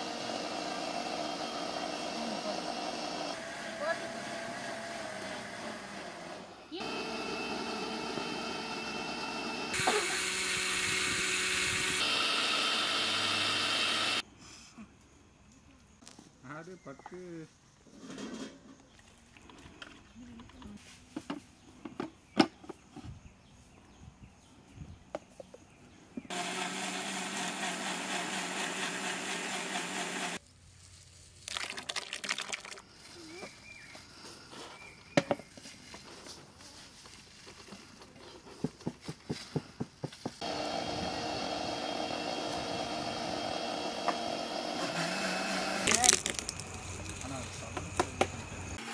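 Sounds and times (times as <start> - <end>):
mixer grinder whirring: 0.0 - 14.2, 26.3 - 30.4, 40.4 - 47.2, 48.6 - 48.9
milkshake splashing into metal pot: 31.5 - 32.8.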